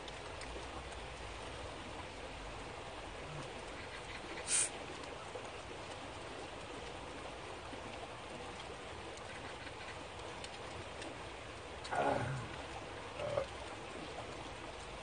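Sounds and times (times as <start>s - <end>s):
steady rain hissing: 0.0s - 15.0s
short sharp hiss: 4.5s - 4.7s.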